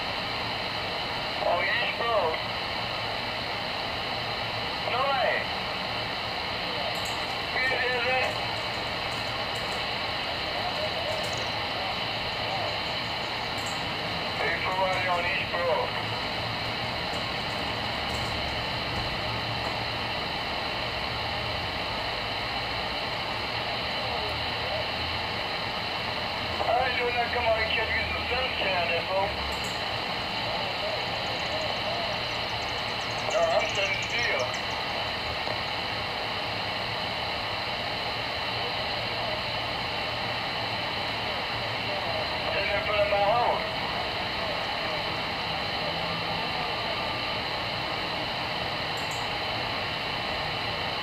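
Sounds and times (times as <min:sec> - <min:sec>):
low hum: 0:00.0 - 0:39.7
radio static hiss: 0:00.0 - 0:51.0.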